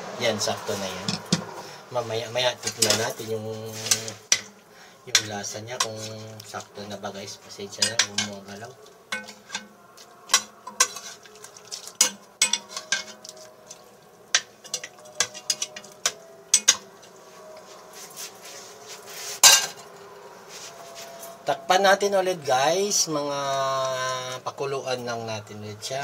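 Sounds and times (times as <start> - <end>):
metal spoon clinking on pot: 7.7 - 8.4, 9.1 - 11.2, 11.9 - 13.4, 14.3 - 16.9.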